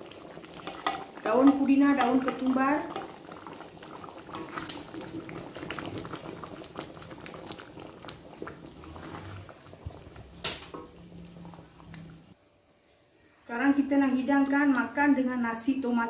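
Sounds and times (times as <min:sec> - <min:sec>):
curry bubbling in a pot: 0:00.0 - 0:12.4
wooden spatula stirring: 0:00.5 - 0:12.3.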